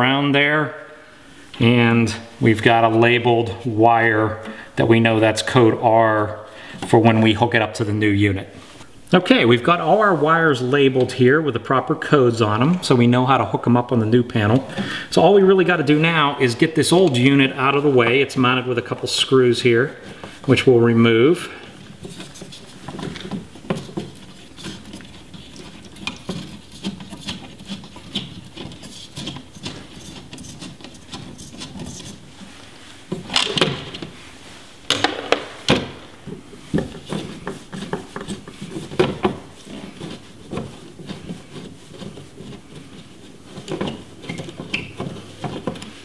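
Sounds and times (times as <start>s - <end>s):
plastic base rattling: 34.9s - 46.0s.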